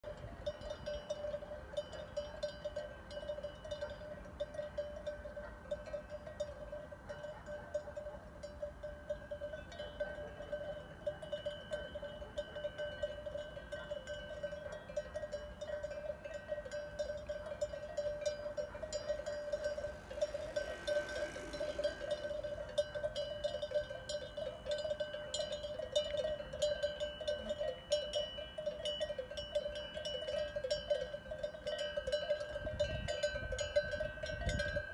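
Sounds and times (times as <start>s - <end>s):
cowbells clanking: 0.0s - 34.9s.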